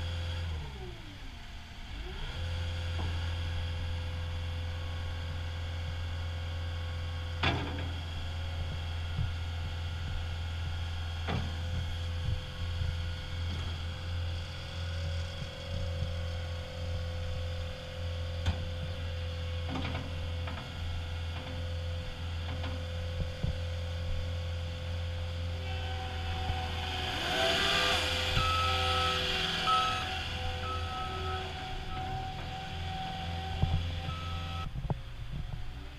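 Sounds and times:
diesel engine running with whine: 0:00.0 - 0:35.9
backup alarm beeping: 0:28.3 - 0:34.7.

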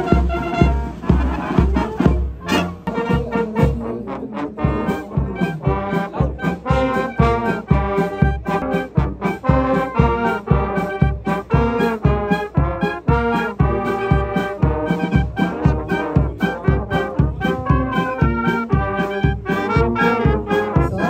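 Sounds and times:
marching band playing: 0:00.0 - 0:21.0
bass drum beat: 0:04.6 - 0:21.0.

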